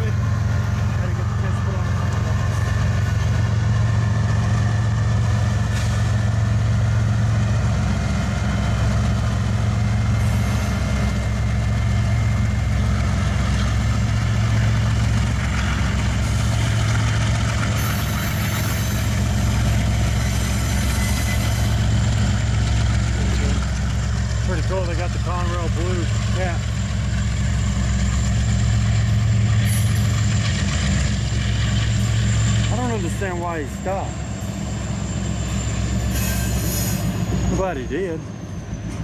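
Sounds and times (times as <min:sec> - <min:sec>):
diesel locomotive engine rumble: 0:00.0 - 0:39.0.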